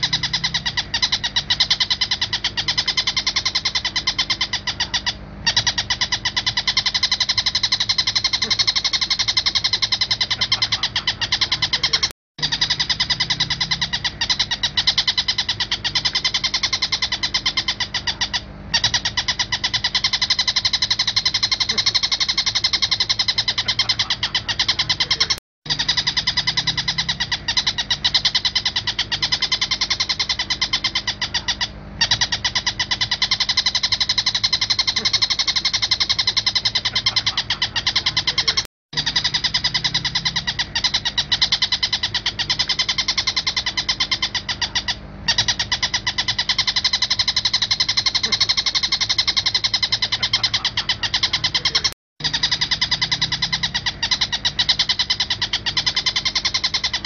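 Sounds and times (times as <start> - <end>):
bird calling in harsh chatter: 0.0 - 57.0.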